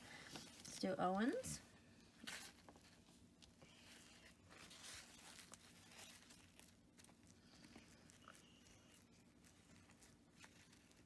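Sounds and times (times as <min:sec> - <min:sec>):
paper towel rustling: 0:02.2 - 0:11.0.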